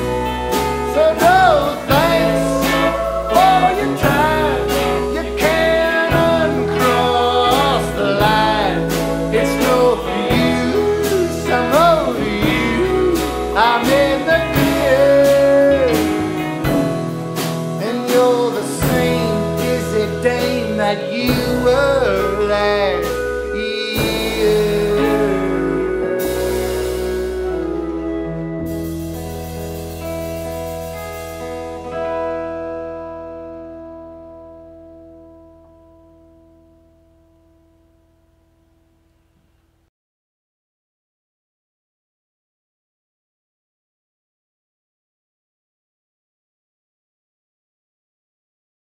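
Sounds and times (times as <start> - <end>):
man singing: 0.0 - 28.4
drums: 0.0 - 32.9
lap slide guitar: 0.0 - 36.4
electric guitar: 0.0 - 38.8
upright bass: 0.0 - 39.3.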